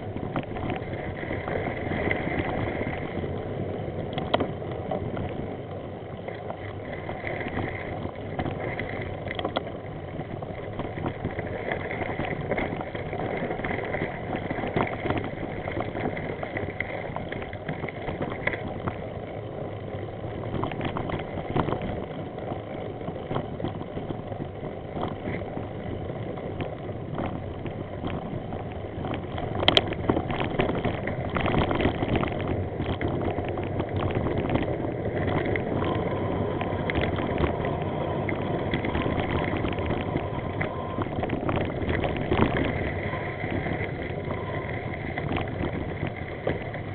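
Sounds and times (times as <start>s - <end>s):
bicycle rolling over gravel: 0.0s - 46.9s
bike rattling and clicking: 0.0s - 46.9s.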